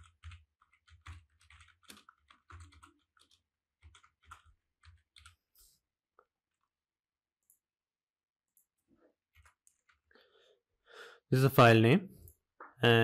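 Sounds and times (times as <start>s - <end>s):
faint keyboard typing: 0.0s - 6.8s, 8.5s - 10.2s.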